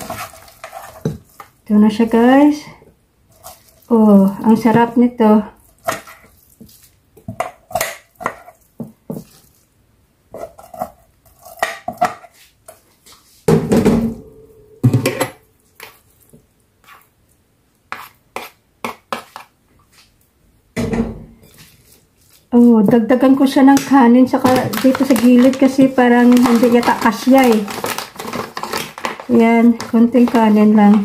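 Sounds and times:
spoons scraping on dishes: 0.0 - 1.6, 5.6 - 9.5, 17.9 - 20.0.

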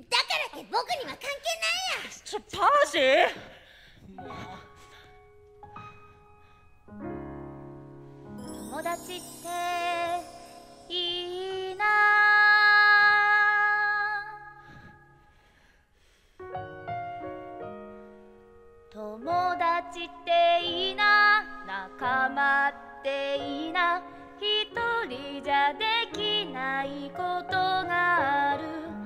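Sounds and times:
piano accompaniment: 4.2 - 13.6, 16.4 - 29.0
person singing slow song: 8.5 - 15.1.

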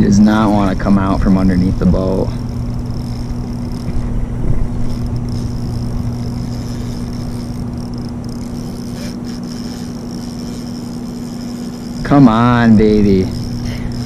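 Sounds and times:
wind noise: 0.0 - 9.8
boat motor humming: 0.0 - 14.0
water noise: 0.0 - 14.0.

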